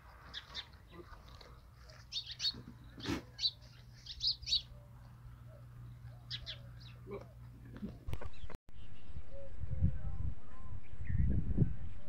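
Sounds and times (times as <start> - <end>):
small birds chirping: 0.2 - 8.9.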